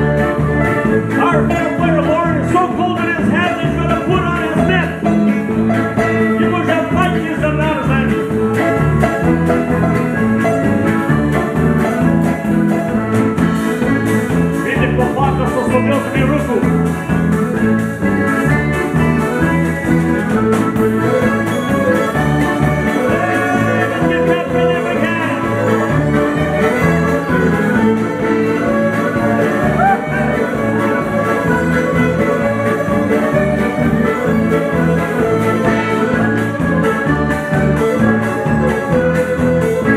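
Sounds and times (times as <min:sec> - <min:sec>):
button accordion: 0:00.0 - 0:39.9
fiddle playing: 0:00.0 - 0:39.9.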